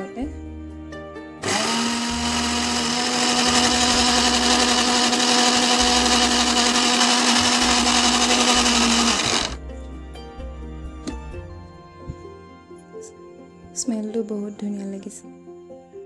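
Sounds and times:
mixer grinder whirring: 1.4s - 9.6s.

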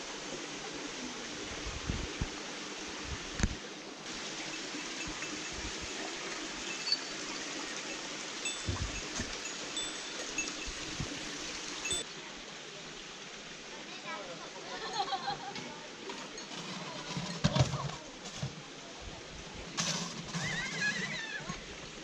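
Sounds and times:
water running over stones: 0.0s - 22.0s
thumps on microphone: 8.6s - 9.3s.

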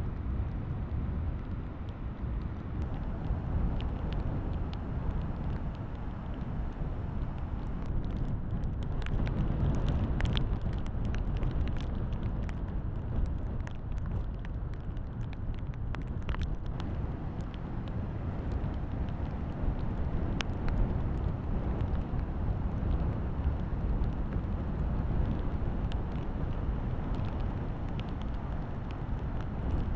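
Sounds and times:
heavy surf rushing and rumbling: 2.8s - 7.9s, 16.6s - 29.9s.

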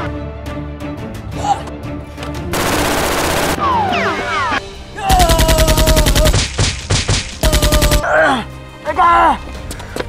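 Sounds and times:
background music: 0.0s - 10.0s
rapid automatic gunfire: 2.5s - 3.8s, 5.1s - 8.0s.

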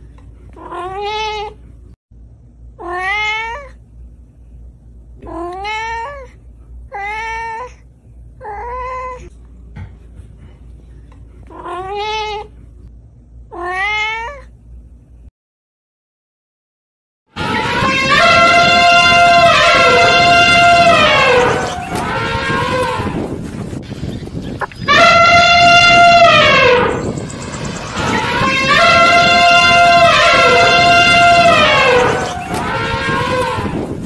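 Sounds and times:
cat meowing: 0.6s - 1.6s, 2.8s - 3.8s, 5.2s - 7.8s, 8.4s - 9.3s, 11.5s - 12.5s, 13.5s - 14.5s
steady low hum: 1.5s - 2.8s, 3.6s - 13.5s, 14.5s - 15.3s, 17.5s - 34.0s.

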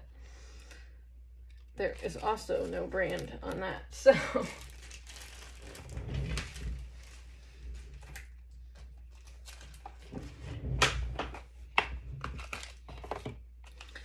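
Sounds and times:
swivel chair movement rumbles: 5.6s - 8.1s, 10.0s - 11.3s.

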